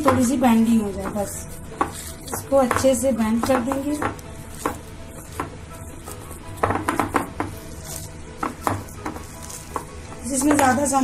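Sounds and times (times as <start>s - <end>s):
wet squishing of mince: 4.0s - 10.0s.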